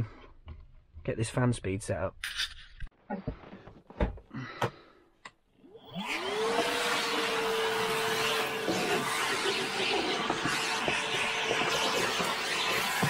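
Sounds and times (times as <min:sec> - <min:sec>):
vacuum cleaner motor whine: 0:05.6 - 0:13.0
suction rush: 0:06.2 - 0:13.0.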